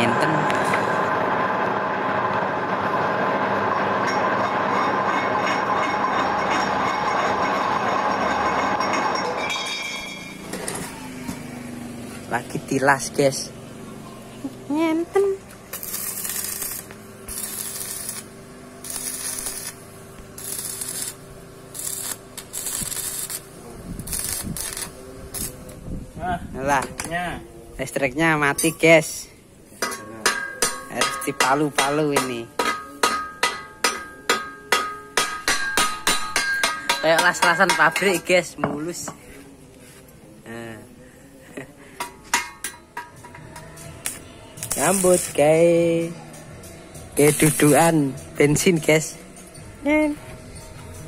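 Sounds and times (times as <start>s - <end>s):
electric arc welding: 15.5s - 25.8s, 44.0s - 46.1s, 47.2s - 49.1s.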